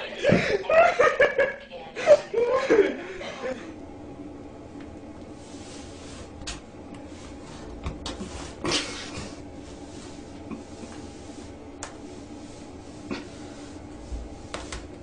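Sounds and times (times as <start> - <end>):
steady low hum: 0.0 - 15.0
rug scraping on tile floor: 5.2 - 15.0.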